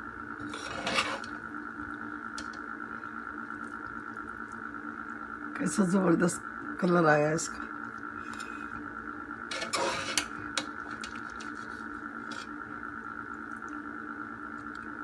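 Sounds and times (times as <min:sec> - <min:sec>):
steady hum: 0:00.0 - 0:15.0
spoon scraping metal pot: 0:00.4 - 0:01.4, 0:09.5 - 0:12.5.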